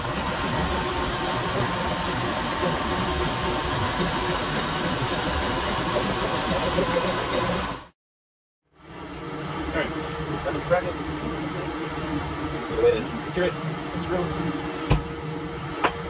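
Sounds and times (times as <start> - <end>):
milling machine cutting metal: 0.0 - 7.9.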